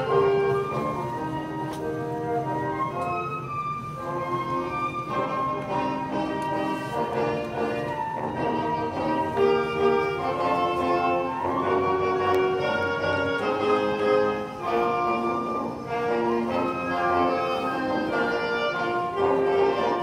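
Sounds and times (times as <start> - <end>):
instrumental ensemble music: 0.0 - 20.0.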